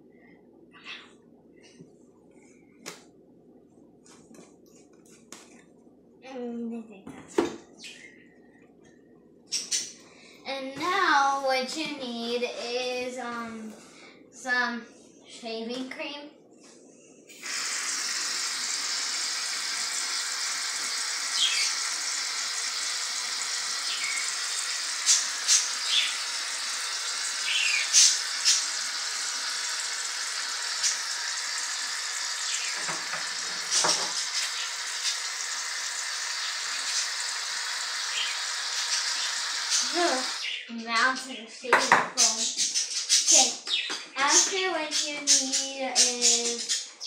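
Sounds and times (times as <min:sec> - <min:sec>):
aerosol can spraying hiss: 0:17.4 - 0:40.4.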